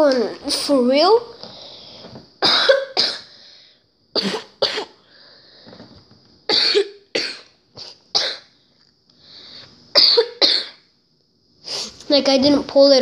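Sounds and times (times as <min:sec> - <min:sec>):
person coughing: 0:02.4 - 0:03.3, 0:04.2 - 0:05.0, 0:06.5 - 0:08.5, 0:10.0 - 0:10.8.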